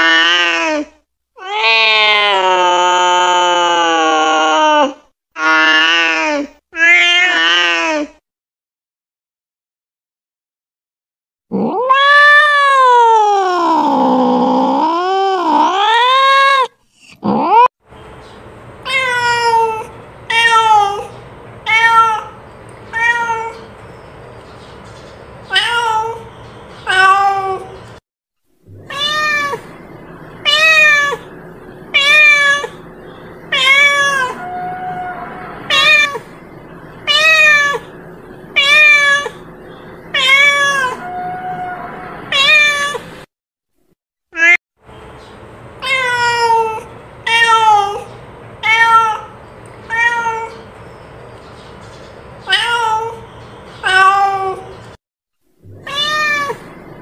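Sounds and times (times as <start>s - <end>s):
cat meowing: 0.0s - 8.1s, 11.6s - 17.7s, 18.8s - 23.7s, 25.5s - 27.8s, 28.7s - 32.8s, 33.5s - 36.4s, 37.0s - 39.5s, 40.1s - 43.2s, 44.4s - 44.6s, 45.8s - 50.6s, 52.4s - 53.2s, 53.8s - 54.8s, 55.7s - 56.8s.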